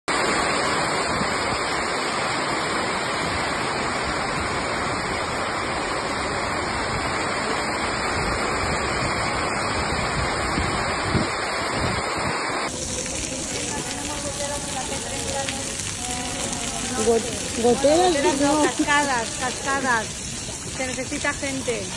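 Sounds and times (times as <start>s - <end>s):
heavy rain pouring: 0.1s - 21.9s
water streaming onto cars: 0.1s - 21.9s.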